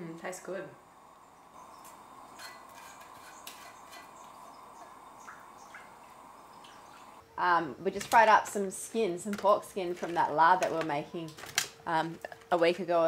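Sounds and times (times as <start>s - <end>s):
faint steady hiss: 0.0s - 13.0s
utensil scraping a saucepan: 1.6s - 5.0s.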